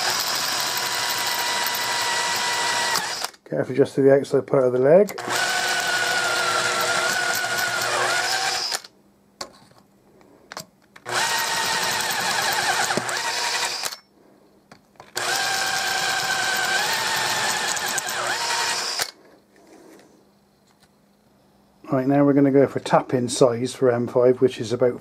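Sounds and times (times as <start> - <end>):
electric drill whining through metal: 0.0 - 3.4, 5.2 - 8.9, 11.0 - 14.1, 15.1 - 19.2.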